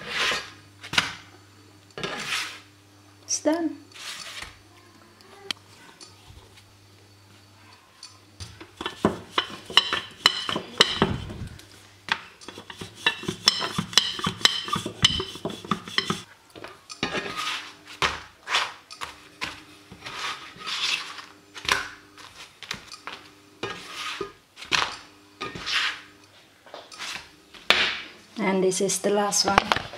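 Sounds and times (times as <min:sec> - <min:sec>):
spatula scraping frying pan: 0:00.0 - 0:00.6, 0:02.0 - 0:02.7, 0:03.9 - 0:04.6, 0:08.6 - 0:11.3, 0:12.4 - 0:16.3, 0:17.0 - 0:17.8, 0:19.5 - 0:21.3, 0:23.6 - 0:24.4, 0:25.4 - 0:26.2
rolling pin on countertop: 0:00.0 - 0:01.2, 0:02.0 - 0:02.7, 0:03.9 - 0:04.6, 0:08.4 - 0:11.5, 0:12.1 - 0:16.3, 0:17.0 - 0:26.1, 0:26.8 - 0:28.0.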